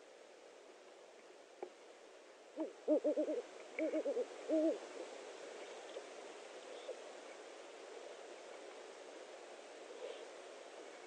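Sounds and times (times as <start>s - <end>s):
owl hooting: 2.6s - 4.8s.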